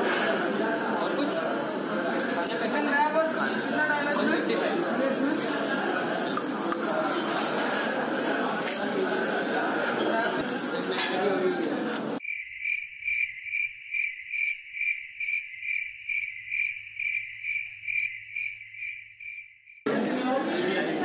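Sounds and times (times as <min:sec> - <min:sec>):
counter noise and talk: 0:00.0 - 0:12.2
cricket chirping: 0:12.2 - 0:19.9.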